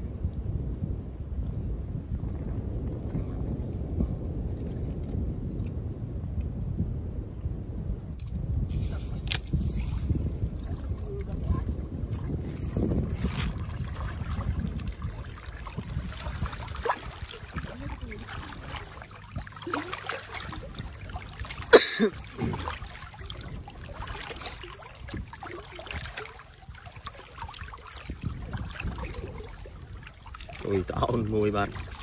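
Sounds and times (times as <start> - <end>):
water trickling and splashing: 8.2 - 32.0.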